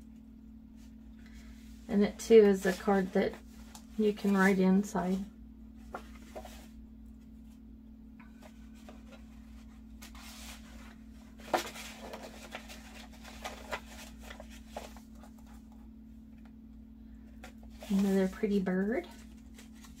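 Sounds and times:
paper rustling: 2.2s - 5.2s, 5.8s - 6.8s, 8.3s - 15.8s, 17.4s - 20.0s.

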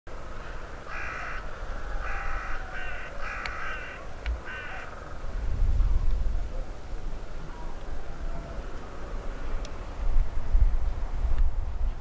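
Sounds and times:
crow cawing: 0.4s - 5.3s.

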